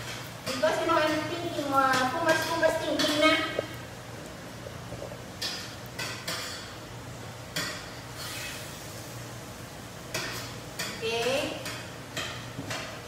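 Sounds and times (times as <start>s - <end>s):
metal spoon scraping bowl and pan: 0.0s - 3.4s, 7.5s - 8.8s
burger patties sizzling: 0.0s - 13.0s.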